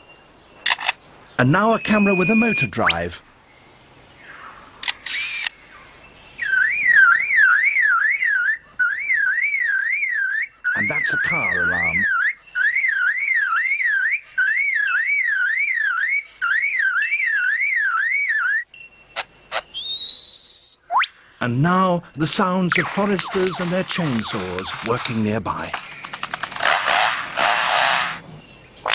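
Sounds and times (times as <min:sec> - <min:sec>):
bird warbling whistle: 0:01.7 - 0:03.0, 0:06.4 - 0:21.2
bird clicks: 0:25.8 - 0:27.6.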